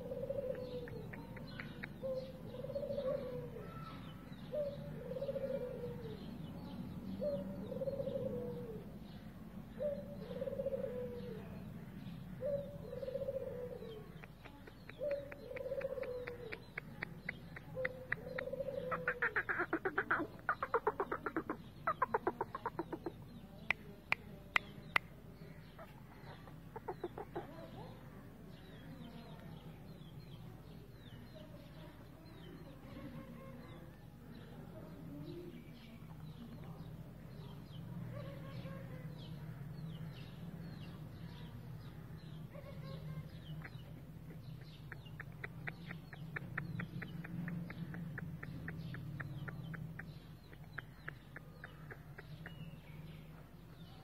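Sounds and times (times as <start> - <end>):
sharp ticks: 44.8 - 52.8.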